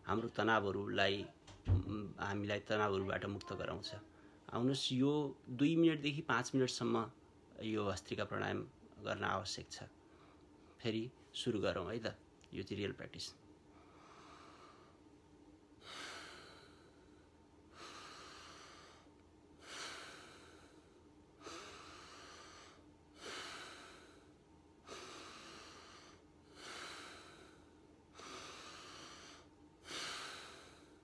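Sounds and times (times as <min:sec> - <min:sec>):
man breathing forcefully through nose: 0:13.8 - 0:15.0, 0:15.8 - 0:31.0.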